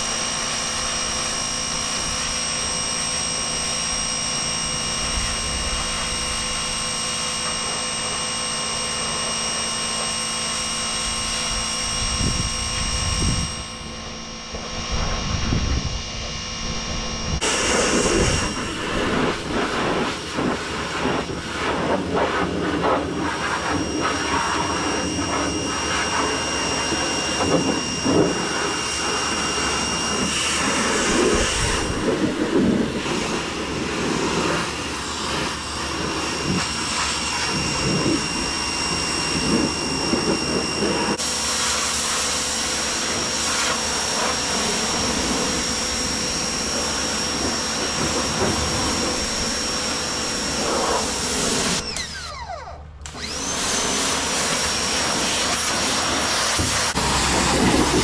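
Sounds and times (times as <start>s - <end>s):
pressure washer motor whine: 0.0s - 58.0s
water jet hissing: 17.4s - 51.8s, 53.2s - 58.0s.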